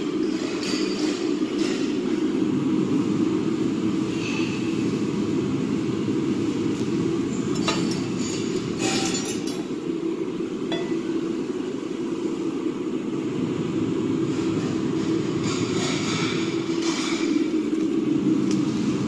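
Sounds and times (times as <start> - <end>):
steady low hum: 0.0 - 19.0
iron pieces and chain clinking: 7.4 - 9.8.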